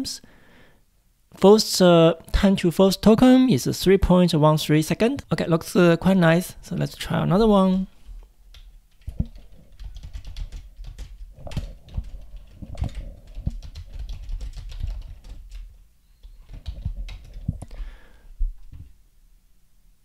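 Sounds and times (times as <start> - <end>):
computer keyboard typing: 8.5 - 17.7.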